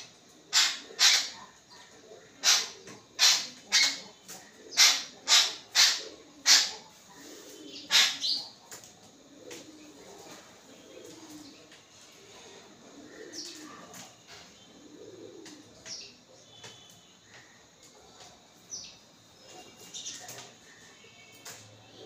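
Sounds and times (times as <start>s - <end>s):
birds calling harshly: 0.0s - 8.7s.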